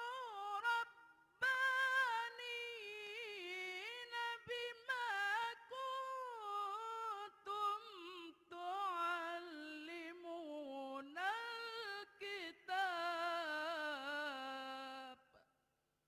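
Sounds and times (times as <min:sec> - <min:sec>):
man reciting melodically: 0:00.0 - 0:15.2.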